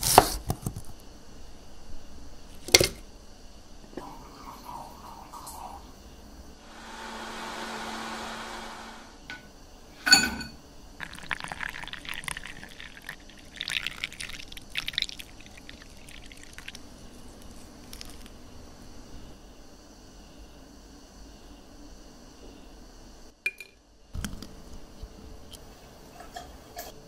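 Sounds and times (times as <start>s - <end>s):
steady whirring: 6.6s - 9.4s
glass clink: 10.0s - 10.6s, 23.5s - 23.8s
juice poured over ice: 11.0s - 18.3s.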